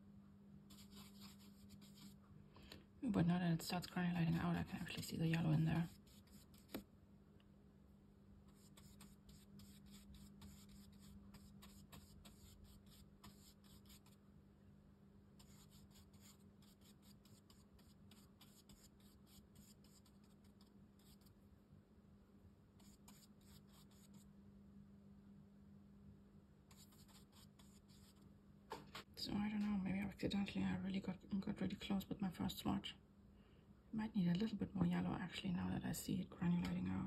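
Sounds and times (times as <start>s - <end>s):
brush strokes on rough paper: 0.7s - 2.2s, 4.8s - 6.8s, 8.5s - 14.2s, 15.4s - 21.4s, 22.8s - 24.3s, 26.7s - 28.2s.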